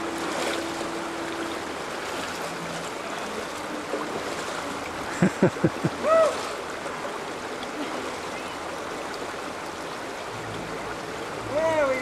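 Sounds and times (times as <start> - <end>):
river rushing over rocks: 0.0 - 12.0
person crying out: 6.0 - 6.5.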